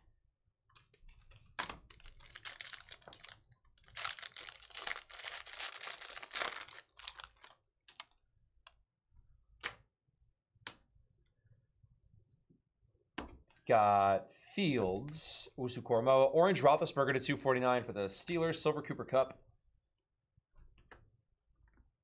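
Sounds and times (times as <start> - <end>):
foil wrapper tearing and crinkling: 1.6 - 8.0.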